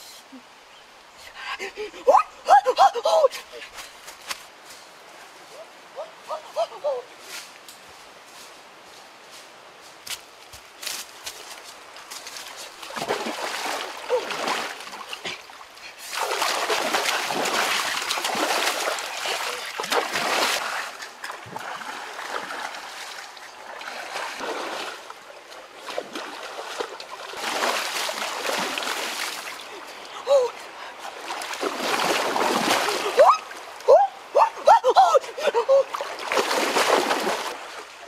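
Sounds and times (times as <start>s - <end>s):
water splashing: 12.3s - 38.0s.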